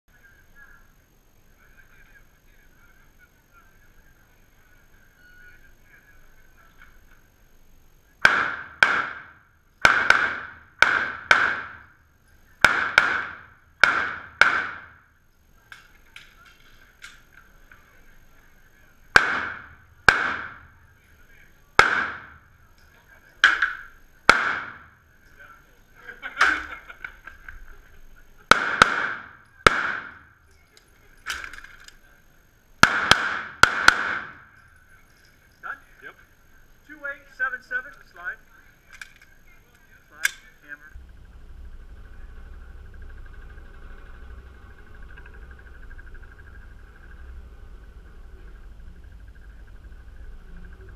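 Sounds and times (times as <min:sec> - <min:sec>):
pistol shots echoing indoors: 0:08.2 - 0:12.0, 0:12.6 - 0:15.1, 0:19.1 - 0:20.7, 0:21.8 - 0:22.5, 0:23.4 - 0:25.0, 0:28.5 - 0:30.3, 0:32.8 - 0:34.6.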